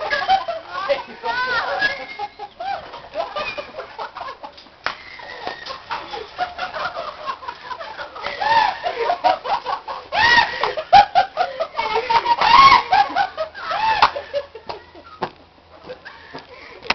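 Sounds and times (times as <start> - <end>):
metal swing set squeaking: 0.0 - 3.8, 5.0 - 6.6.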